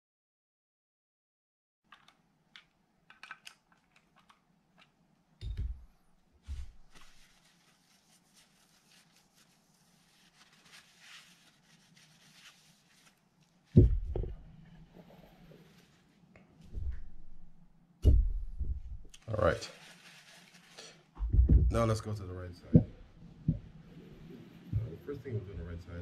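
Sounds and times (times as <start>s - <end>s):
small metal clicks: 1.9s - 5.6s
paper towel rubbing metal: 6.5s - 14.2s, 18.8s - 21.0s
dull knocks: 13.8s - 14.4s, 18.0s - 19.1s, 21.2s - 21.9s, 22.7s - 23.7s
metal frame thump on mat: 13.8s - 14.5s.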